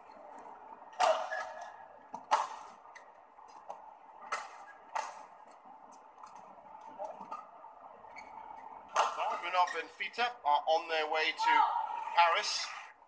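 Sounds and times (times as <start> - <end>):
steady hall hum: 0.0 - 13.0
rackets striking shuttlecock: 0.9 - 7.5, 8.9 - 9.4.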